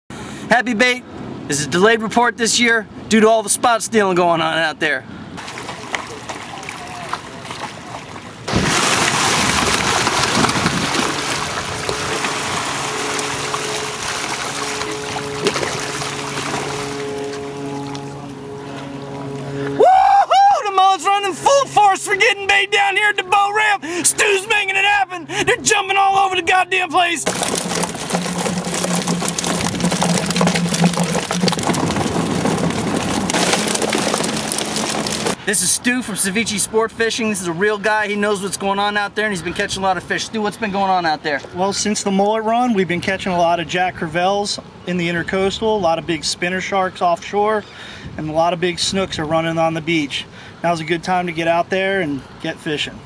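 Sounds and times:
low steady hum: 0:05.1 - 0:24.5, 0:27.2 - 0:35.4
fish splashing at water surface: 0:05.4 - 0:18.1, 0:27.2 - 0:35.4
boat motor idling: 0:05.4 - 0:24.0, 0:27.2 - 0:35.4.

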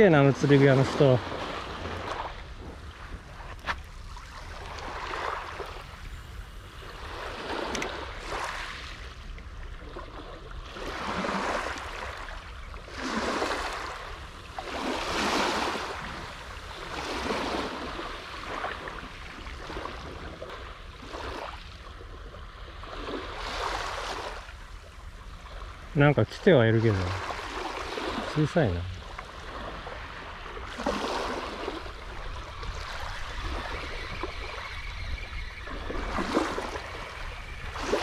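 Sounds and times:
waves washing over gravel beach: 0:12.9 - 0:20.2.

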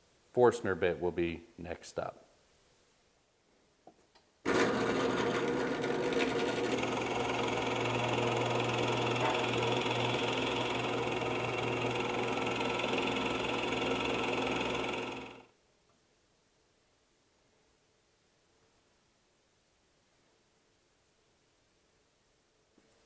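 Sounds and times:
drill bit boring into wood: 0:04.5 - 0:15.5
drill press motor hum: 0:04.5 - 0:15.5.

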